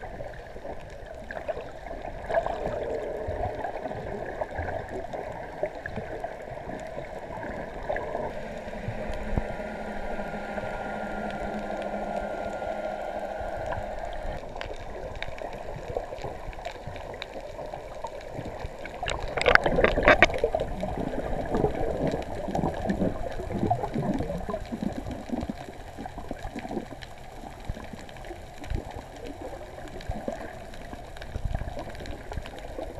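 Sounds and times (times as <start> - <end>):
muffled underwater gurgling: 0.0 - 32.9
bubbling rush: 1.2 - 26.9.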